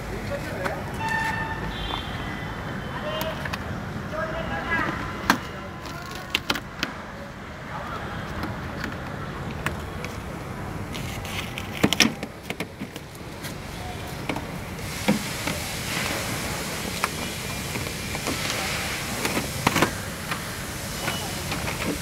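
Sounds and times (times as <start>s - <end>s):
plastic sheet crinkling and rustling: 10.9s - 13.7s.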